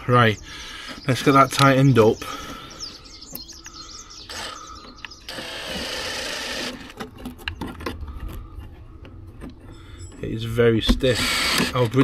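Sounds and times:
cordless drill running: 4.3 - 7.0, 11.2 - 11.9.

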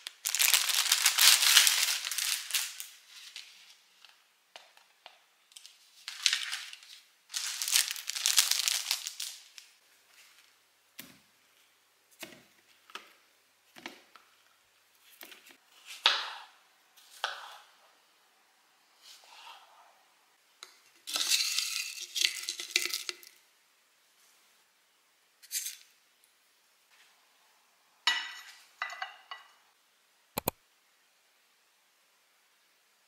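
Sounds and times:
plastic bag crinkling: 0.0 - 3.6, 5.6 - 9.8.

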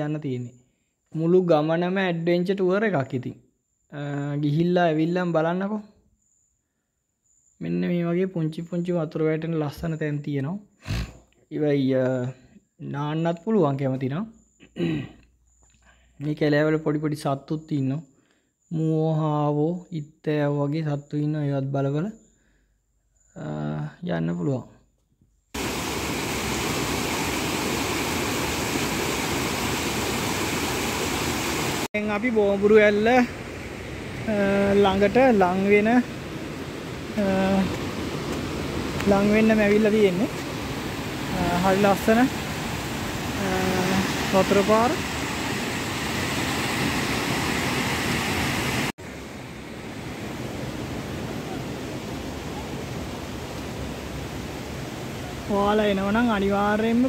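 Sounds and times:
water rushing over small cascade: 25.6 - 55.5
flowing stream: 25.6 - 57.0.

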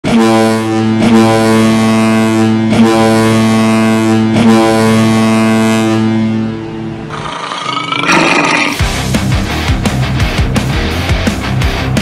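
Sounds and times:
low goal horn blaring: 0.1 - 7.1.

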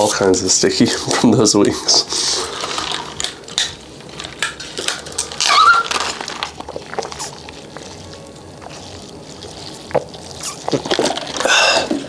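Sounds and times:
mouth noises while eating: 4.9 - 12.0.

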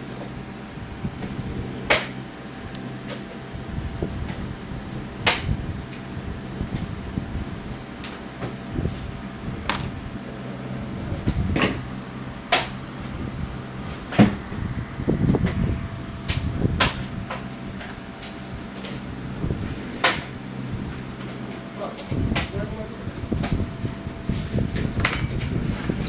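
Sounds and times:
steady low hum: 0.0 - 26.0
clicks and knocks of handled parts: 9.6 - 9.9.

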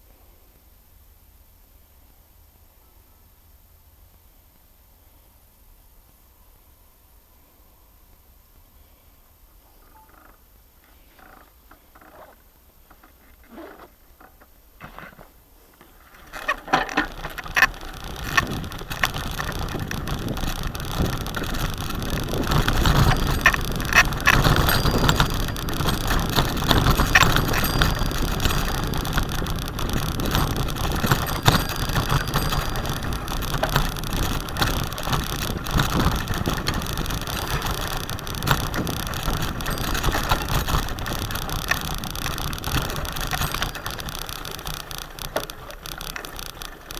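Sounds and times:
bicycle rattling on dirt track: 10.0 - 46.9.

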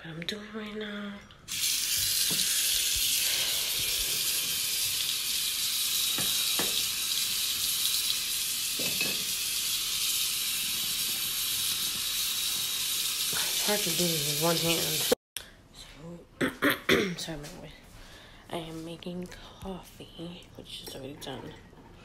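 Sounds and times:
water running from faucet: 1.5 - 15.2.

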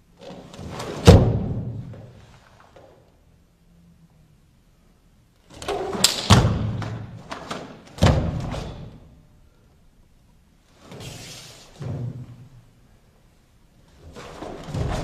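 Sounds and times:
cloth uniform snapping: 5.6 - 6.6.

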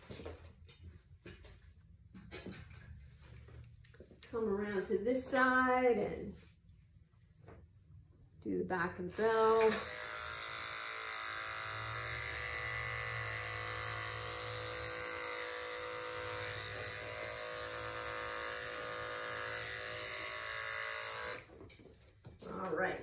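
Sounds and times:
electric clipper humming: 8.9 - 21.5.

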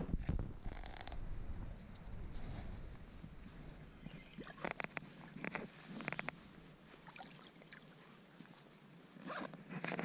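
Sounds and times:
water sloshing and splashing: 4.1 - 6.2, 6.9 - 8.9.

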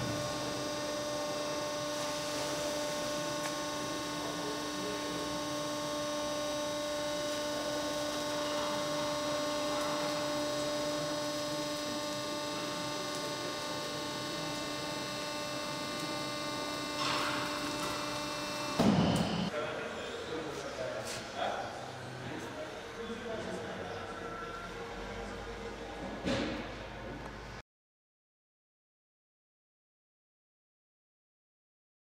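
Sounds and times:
shredder machine hum: 0.0 - 19.5.

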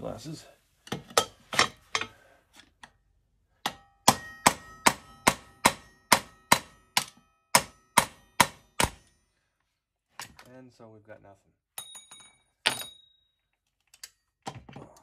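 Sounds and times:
hammer striking steel punch: 3.6 - 9.2.

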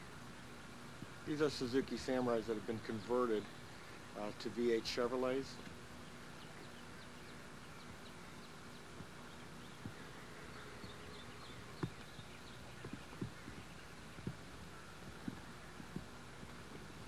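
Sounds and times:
faint outdoor ambience: 0.0 - 17.0
videotape hiss: 0.0 - 17.0.

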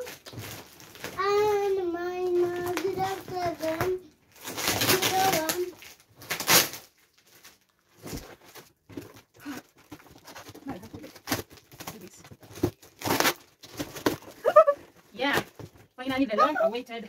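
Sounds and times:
plastic crinkling and rustling: 0.0 - 17.0
knife cutting plastic and tape: 2.3 - 6.9, 9.4 - 14.7.

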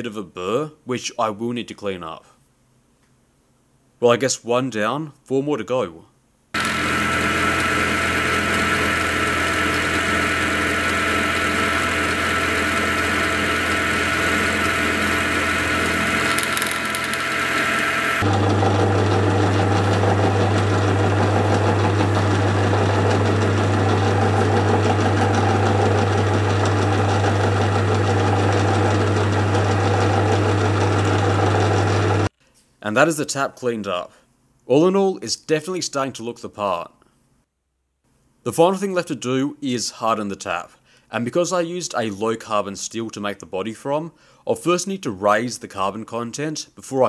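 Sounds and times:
metal lathe humming: 6.6 - 32.3
milling machine spindle whining: 6.6 - 32.3.

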